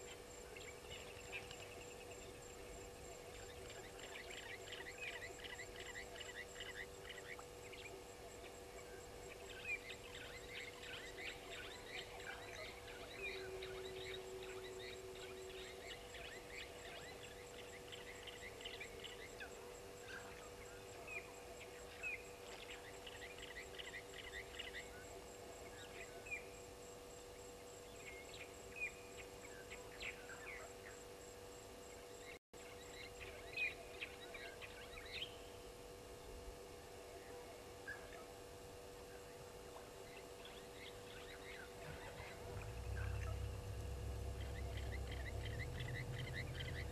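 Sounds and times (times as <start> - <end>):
faint steady hum: 0.0 - 46.9
birds chirping and whistling: 41.1 - 46.9.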